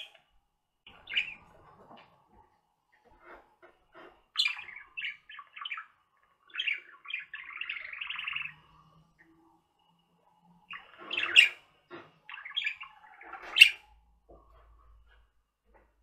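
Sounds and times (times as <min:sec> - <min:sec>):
budgerigars chirping and warbling: 0:00.9 - 0:01.9, 0:03.1 - 0:09.6, 0:10.6 - 0:14.0.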